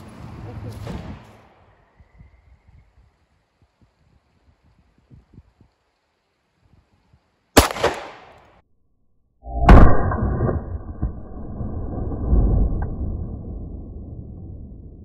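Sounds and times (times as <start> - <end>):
pistol shots: 7.6 - 8.6.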